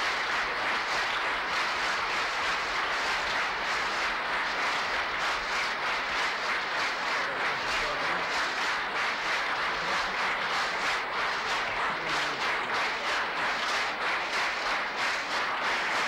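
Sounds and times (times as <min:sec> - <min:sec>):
crowd applauding: 0:00.0 - 0:16.0.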